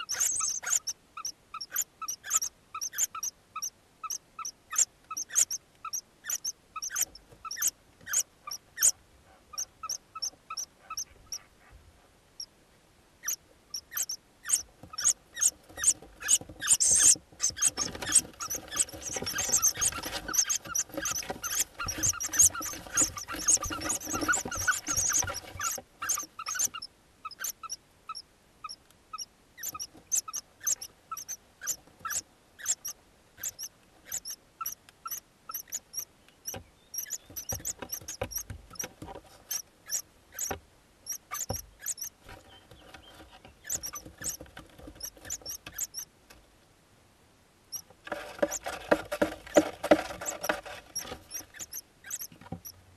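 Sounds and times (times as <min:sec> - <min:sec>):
bird nestlings calling: 0:00.0 - 0:11.5, 0:13.2 - 0:28.2, 0:29.2 - 0:38.8, 0:41.1 - 0:42.1, 0:42.7 - 0:44.4, 0:45.0 - 0:46.0, 0:50.2 - 0:52.3.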